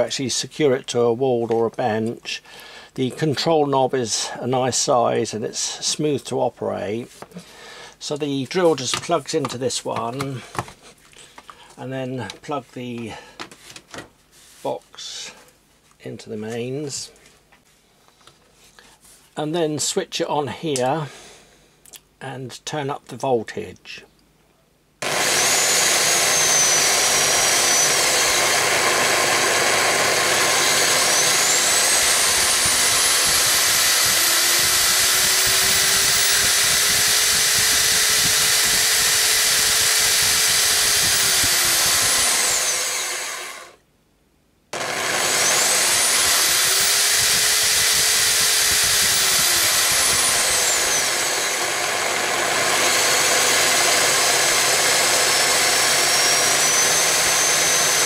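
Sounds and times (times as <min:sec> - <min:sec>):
electric drill motor whine: 0:25.0 - 0:43.8, 0:44.8 - 0:58.0.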